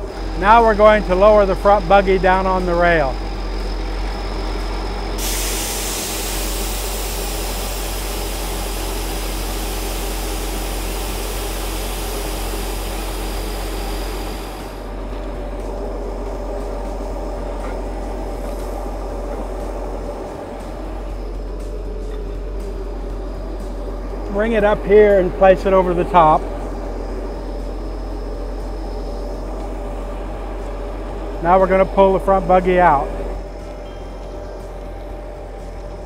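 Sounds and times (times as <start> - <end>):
track machine engine running: 0.0 - 36.0
loud air hiss: 5.1 - 15.0.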